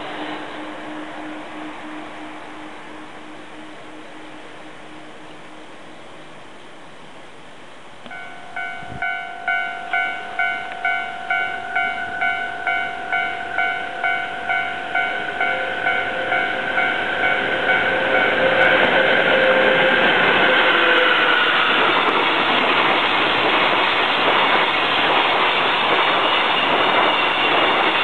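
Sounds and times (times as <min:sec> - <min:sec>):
freight train rumble: 0:00.0 - 0:28.0
level crossing bell clanging: 0:08.1 - 0:18.5.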